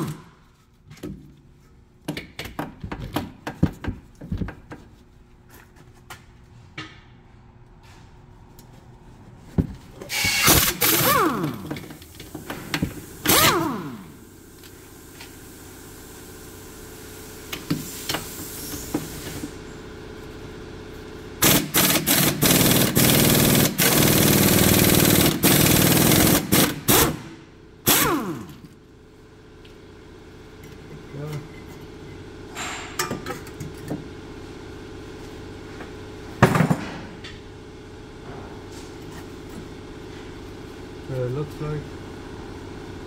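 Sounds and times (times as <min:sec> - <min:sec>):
cordless power tool bursts: 0:10.0 - 0:11.8, 0:13.2 - 0:14.2, 0:21.4 - 0:28.6.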